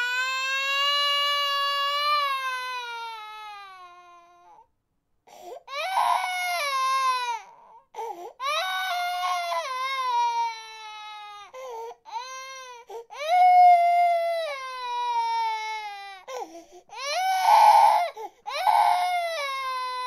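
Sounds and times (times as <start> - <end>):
baby crying: 0.0 - 4.6, 5.6 - 20.0.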